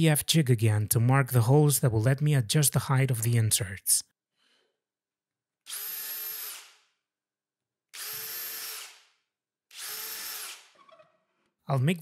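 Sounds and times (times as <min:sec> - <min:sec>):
cordless drill whining: 0:05.6 - 0:06.9, 0:07.9 - 0:10.8.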